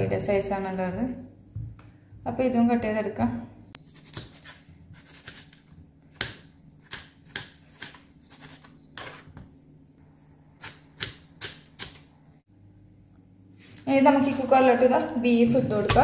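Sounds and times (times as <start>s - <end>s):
knife chopping on wooden board: 3.9s - 9.4s, 10.6s - 12.1s.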